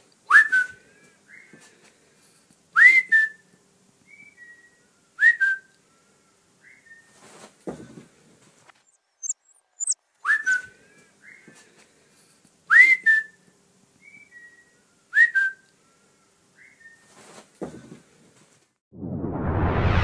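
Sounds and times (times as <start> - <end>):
person whistling: 0.3 - 0.8, 2.8 - 3.4, 9.2 - 10.7, 12.7 - 13.4, 14.0 - 15.6
faint high chirps: 8.7 - 11.5
dog whining whistle: 9.2 - 10.7.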